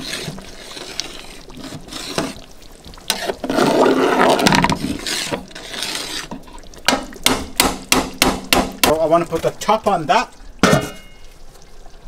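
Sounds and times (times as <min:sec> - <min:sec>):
metal stirrer scraping a pot: 0:00.0 - 0:02.5, 0:03.1 - 0:06.6
curry simmering: 0:00.0 - 0:12.0.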